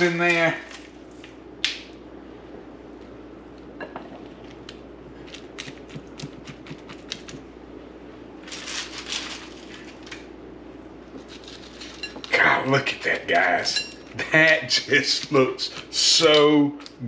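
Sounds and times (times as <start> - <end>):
tortilla chips crunching: 4.5 - 7.4, 8.4 - 10.3, 11.2 - 13.2.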